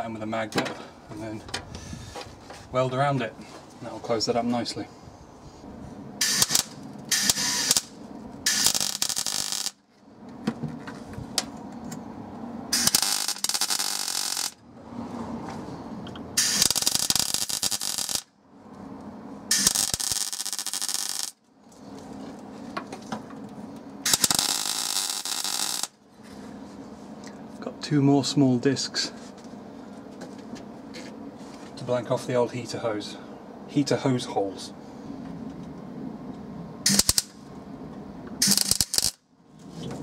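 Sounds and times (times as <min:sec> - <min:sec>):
arc welder hissing: 0:06.2 - 0:09.8, 0:12.7 - 0:14.6, 0:16.4 - 0:18.3, 0:19.5 - 0:21.4, 0:24.0 - 0:26.0, 0:36.9 - 0:37.3, 0:38.4 - 0:39.2.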